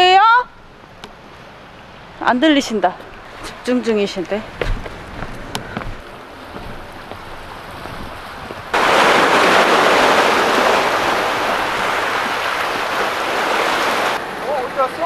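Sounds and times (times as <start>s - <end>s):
waves breaking over rocks: 7.3s - 15.0s.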